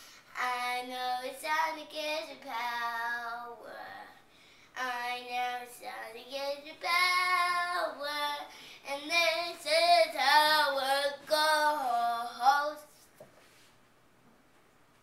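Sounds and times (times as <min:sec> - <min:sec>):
girl singing unaccompanied: 0:00.0 - 0:13.0.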